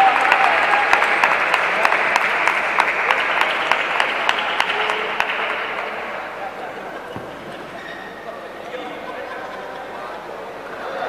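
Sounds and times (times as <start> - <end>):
spectators applauding: 0.0 - 7.8.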